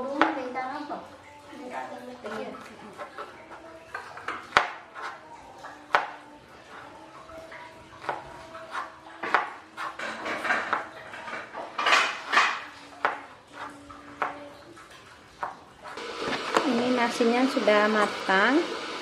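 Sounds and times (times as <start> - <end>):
dishes and utensils clinking: 1.6 - 16.8
dishes scraping and rubbing: 1.7 - 7.1, 8.0 - 16.8.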